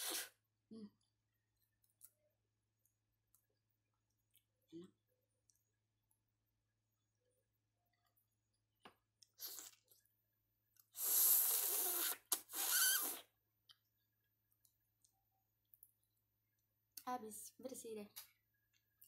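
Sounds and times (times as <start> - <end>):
slurping and sucking: 0.0 - 0.4, 9.2 - 10.0, 10.8 - 13.3.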